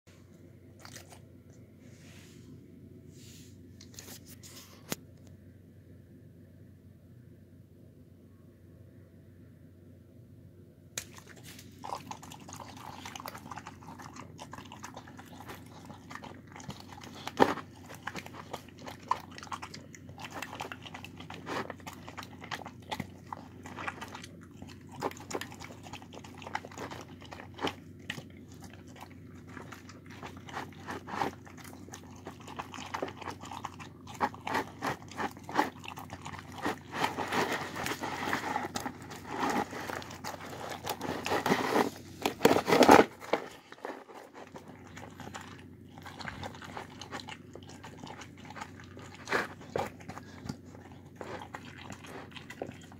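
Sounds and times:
dog chewing and smacking: 0:11.0 - 0:52.9.

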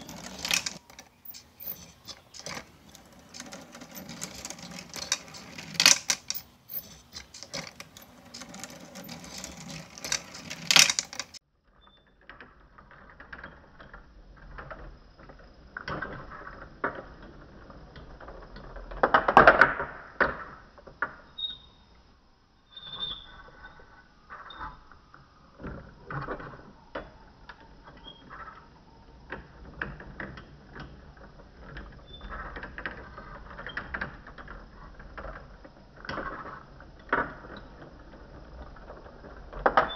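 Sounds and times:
glass marbles clicking and rolling: 0:00.0 - 0:11.4.

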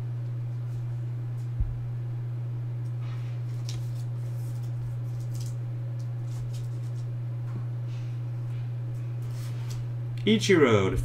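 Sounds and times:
low hum: 0:00.0 - 0:11.0
trading cards rustling: 0:03.4 - 0:05.6.

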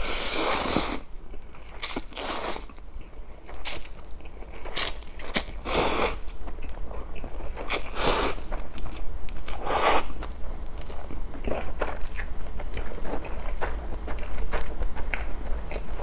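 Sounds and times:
person slurping noodles: 0:00.0 - 0:01.0
chewing with wet mouth clicks: 0:06.2 - 0:16.0.

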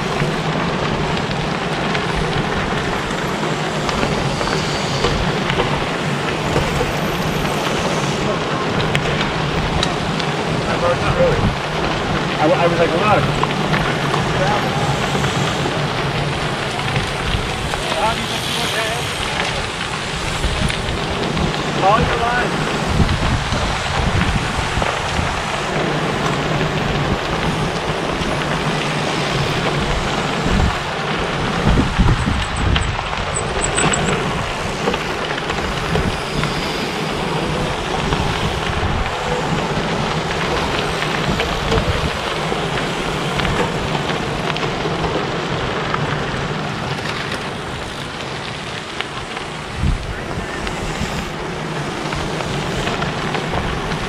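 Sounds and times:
bike tyres crunching on gravel: 0:00.0 - 0:54.0.

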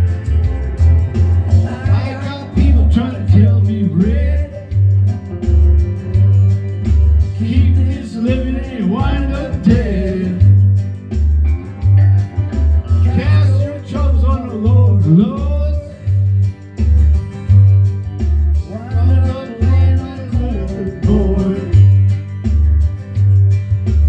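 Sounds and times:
recorded backing music with guitar: 0:00.0 - 0:24.0
man singing into a microphone: 0:01.6 - 0:05.3, 0:07.3 - 0:10.6, 0:13.0 - 0:16.2, 0:18.7 - 0:22.0.

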